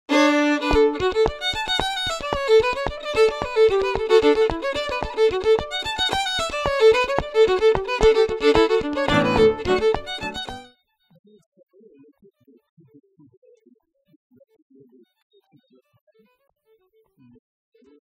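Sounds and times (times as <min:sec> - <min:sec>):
fiddle playing lively tune: 0:00.1 - 0:10.7.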